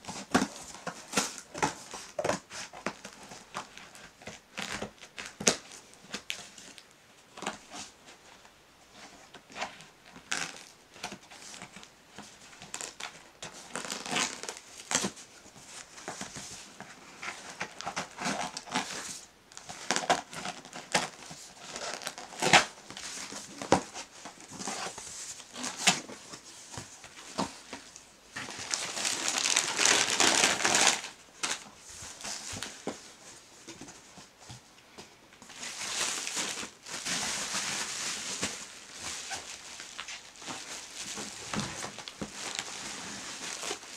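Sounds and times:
cardboard flaps rustling: 0:09.5 - 0:43.9
loud crinkling: 0:28.4 - 0:32.9, 0:35.5 - 0:43.9.

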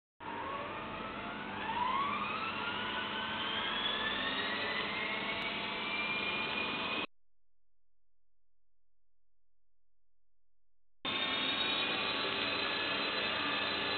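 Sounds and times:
rc helicopter motor whine: 0:00.2 - 0:07.1, 0:11.1 - 0:13.9.

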